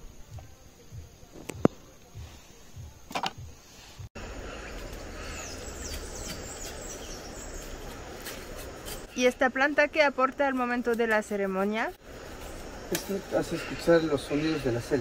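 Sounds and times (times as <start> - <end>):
birds chirping: 0.9 - 15.0.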